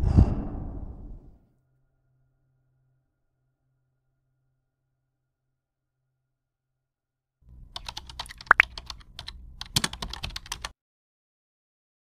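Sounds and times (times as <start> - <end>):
low hum: 0.0 - 1.4
quick irregular clicks and taps: 7.7 - 10.7.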